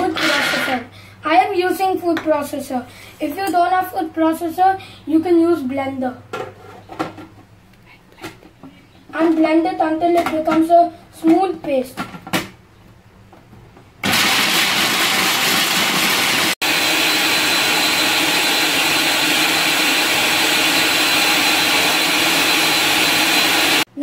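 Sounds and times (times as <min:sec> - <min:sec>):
food processor grinding nuts: 0:00.0 - 0:00.8, 0:14.0 - 0:23.9.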